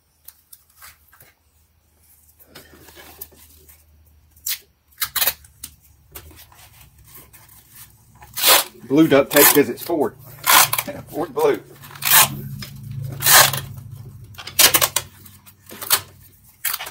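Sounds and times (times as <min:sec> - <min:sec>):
duct tape ripping off roll: 0:04.3 - 0:05.7, 0:08.2 - 0:09.8, 0:10.4 - 0:16.9.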